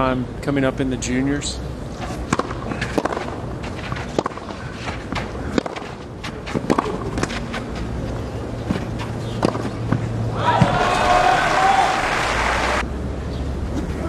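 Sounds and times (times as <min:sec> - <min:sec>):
racket striking tennis ball: 0:01.9 - 0:08.0, 0:08.6 - 0:10.0
footsteps scuffing on clay: 0:02.0 - 0:10.0.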